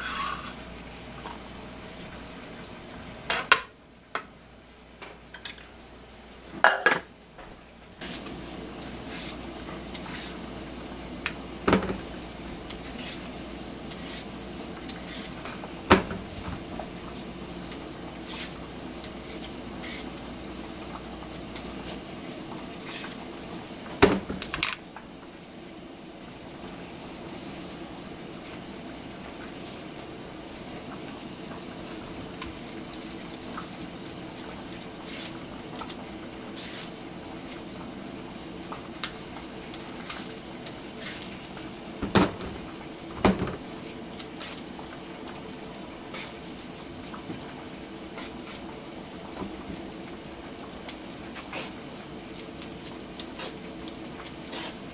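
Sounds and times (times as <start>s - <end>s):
peeler scraping eggplant skin: 12.9s - 13.3s, 14.9s - 15.4s, 18.2s - 20.2s, 22.9s - 23.2s, 36.6s - 36.9s, 48.2s - 48.6s, 54.2s - 54.8s.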